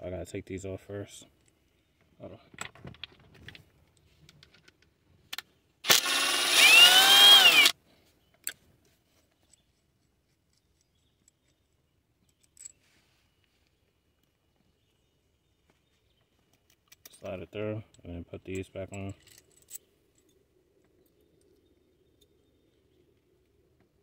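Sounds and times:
light clicks of parts handled: 1.4 - 5.5, 8.0 - 14.7, 15.6 - 22.4
small power tool motor whirring: 5.8 - 7.8.

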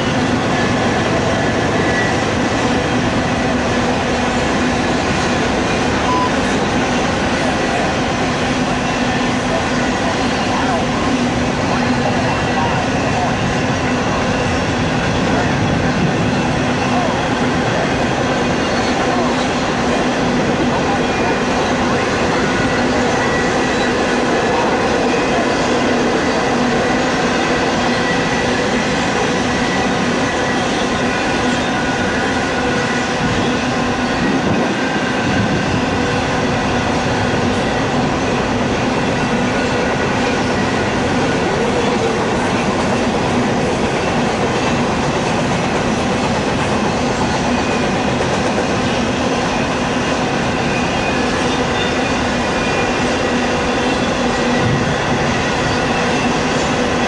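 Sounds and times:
steel wheels rolling on rail: 0.0 - 57.0.

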